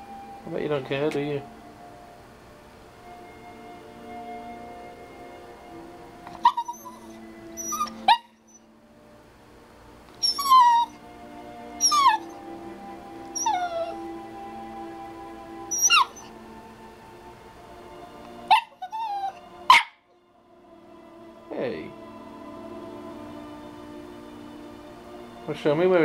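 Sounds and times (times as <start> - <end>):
small dog whining yips: 6.3 - 8.7, 10.2 - 11.0, 11.8 - 12.4, 13.4 - 14.0, 15.7 - 16.3, 18.5 - 20.0.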